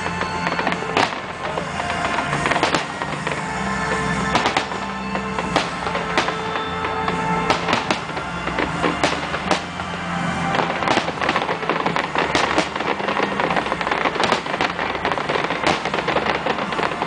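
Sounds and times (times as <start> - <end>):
fireworks bangs and crackles: 0.0 - 17.0
music: 0.0 - 17.0.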